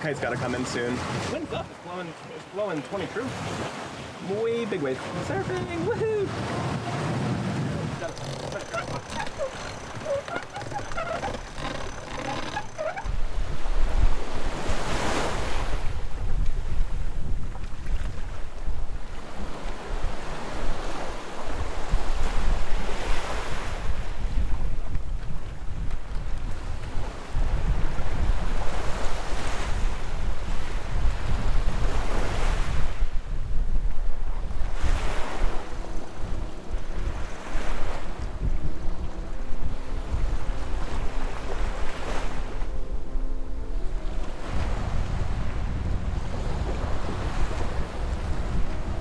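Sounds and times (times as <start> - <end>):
waves rushing along hull: 0.0 - 49.0
wind buffeting microphone: 5.0 - 49.0
winch squeaking and clicking: 8.0 - 13.2, 35.7 - 37.4.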